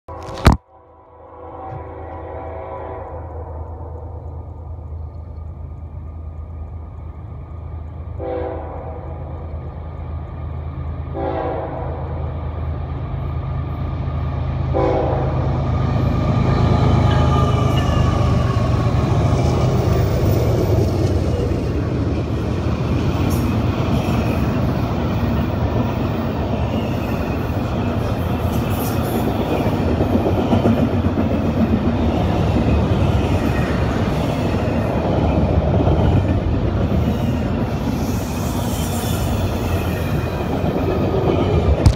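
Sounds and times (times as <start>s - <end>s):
train horn blasts: 0.1s - 3.8s, 8.2s - 9.3s, 11.1s - 12.2s, 14.7s - 18.9s
diesel locomotive engine rumble: 1.2s - 41.9s
train clanks: 1.7s - 41.9s
train wheels on rails: 1.7s - 41.9s.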